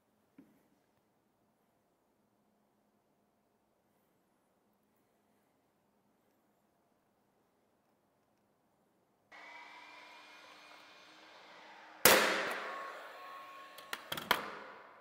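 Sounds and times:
nail gun motor whirring: 9.4 - 15.0
nail gun firing shot: 11.2 - 15.0.

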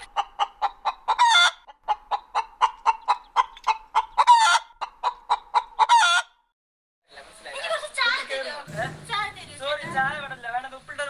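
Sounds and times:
chicken clucking: 0.0 - 6.4
chicken squawking: 0.0 - 6.4.

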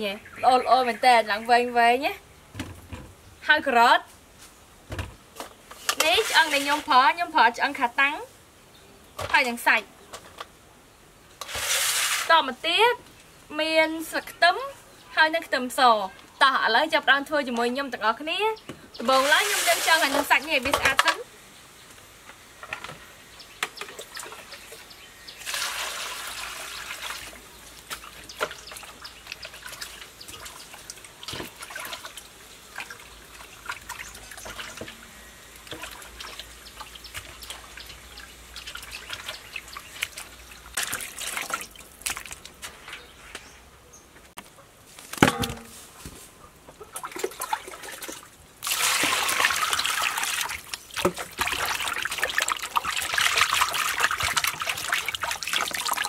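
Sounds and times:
water sloshing and splashing: 5.9 - 7.0, 19.0 - 21.2, 23.8 - 43.1, 46.8 - 56.0
hands washing meat in water: 35.6 - 42.8, 46.8 - 56.0.

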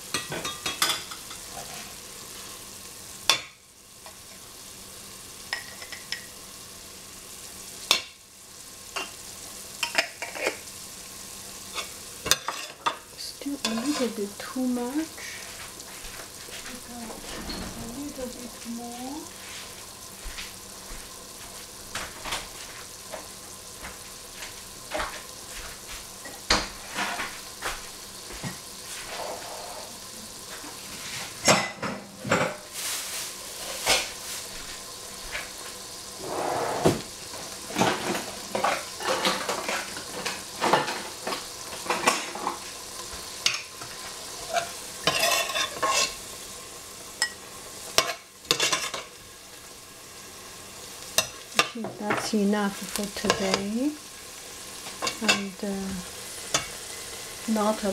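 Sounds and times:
meat sizzling in oil: 0.0 - 57.9
metal spoon scraping a pot: 29.1 - 29.9, 44.5 - 46.2.

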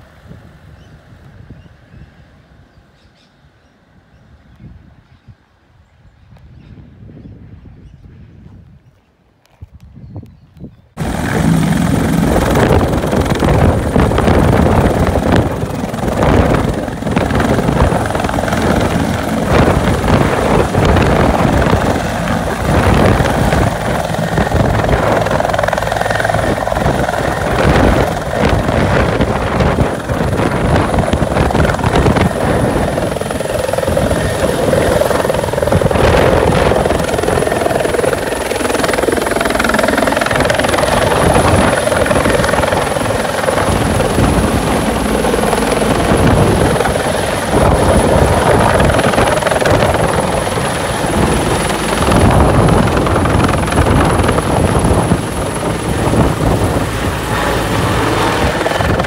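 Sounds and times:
helicopter rotor beating: 11.0 - 59.0.

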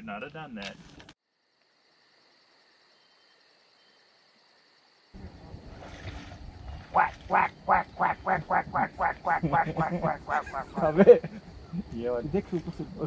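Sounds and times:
outdoor background sound: 0.0 - 13.0
loud duck quacks: 6.8 - 11.0.

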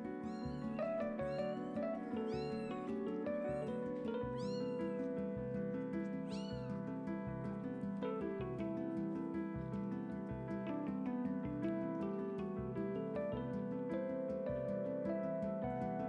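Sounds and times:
kittens mewing: 0.2 - 5.1, 6.2 - 6.8.

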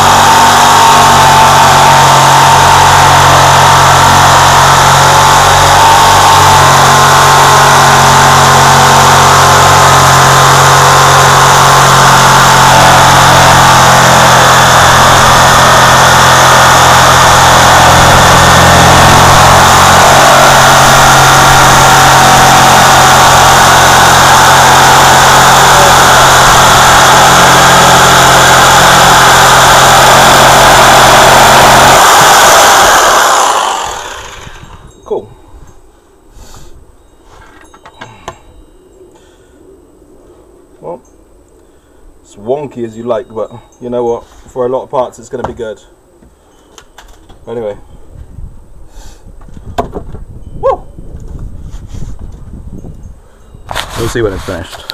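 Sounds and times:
electric jigsaw sawing wood: 0.0 - 34.8
power tool cutting wood: 0.0 - 34.9
saw winding down whine: 0.0 - 35.3.

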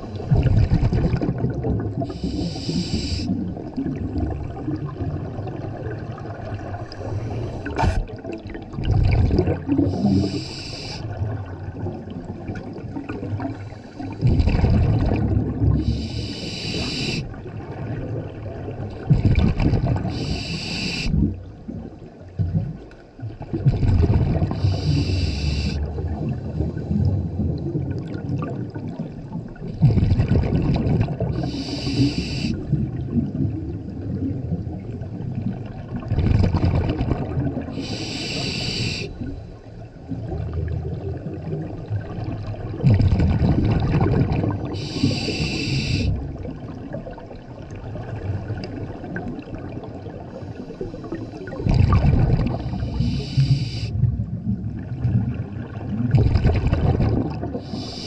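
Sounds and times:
exhaust bubbles rumbling: 0.0 - 16.1, 17.4 - 20.3, 21.1 - 31.6, 32.6 - 37.9, 39.9 - 58.0
regulator hiss on inhale: 2.1 - 3.4, 9.8 - 11.2, 13.5 - 14.2, 15.8 - 17.4, 20.1 - 21.2, 24.5 - 25.9, 31.4 - 32.7, 37.8 - 39.6, 44.7 - 46.2, 52.5 - 54.0, 57.6 - 58.0.

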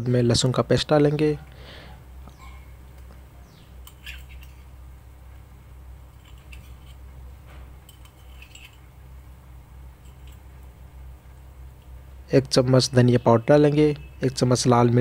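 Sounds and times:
steady low hum: 0.0 - 15.0
utensils scraping metal pan: 3.9 - 4.6, 6.1 - 7.0, 7.9 - 8.9.

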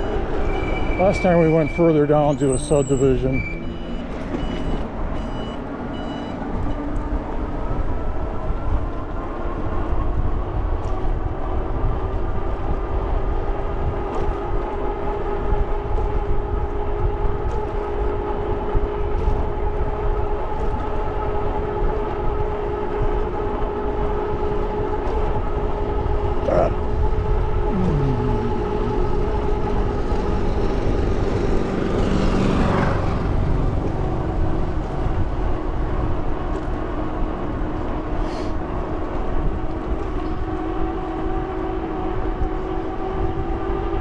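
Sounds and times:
high electronic beeps: 1.6 - 6.4
wind rumble on microphone: 3.3 - 44.0.

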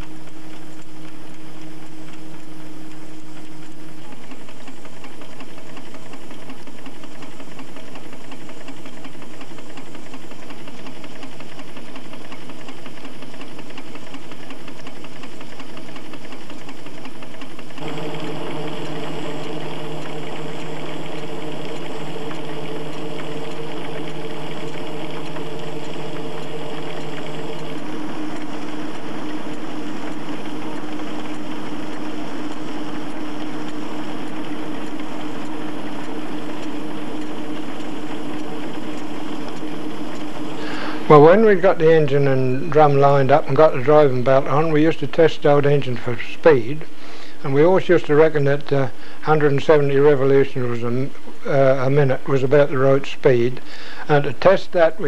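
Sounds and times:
steam engine driving threshing machinery: 3.9 - 46.6.

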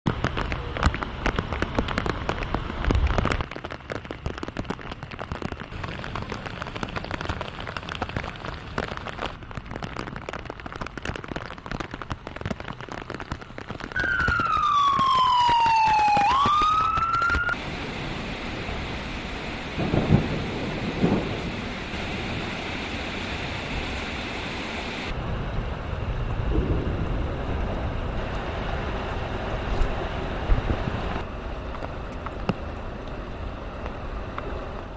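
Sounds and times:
heavy rain: 0.1 - 34.9
emergency vehicle siren: 14.0 - 17.9
low rumble: 25.1 - 34.9.

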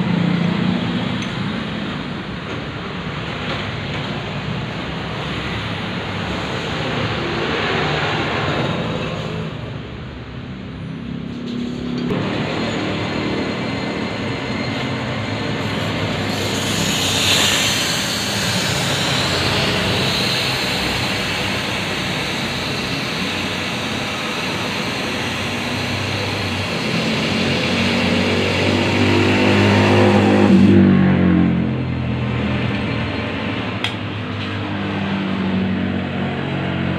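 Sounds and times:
metal lathe humming: 12.0 - 30.2
abrasive paper hissing on shaft: 15.5 - 28.3.

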